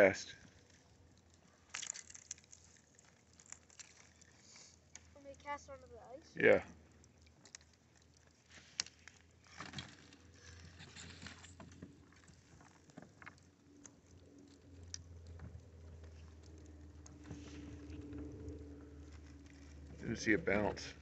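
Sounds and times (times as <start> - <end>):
ticks and taps on thin ice: 1.6 - 6.0, 7.0 - 14.1.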